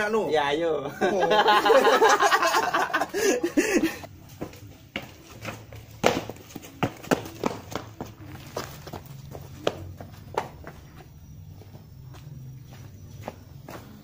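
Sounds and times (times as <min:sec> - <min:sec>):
man laughing: 0:00.8 - 0:04.1
running footsteps on hard path: 0:04.2 - 0:14.0.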